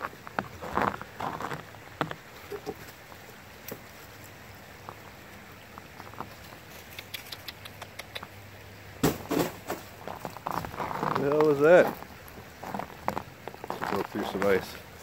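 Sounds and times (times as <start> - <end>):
footsteps crunching on snow: 0.0 - 5.0, 9.3 - 14.8.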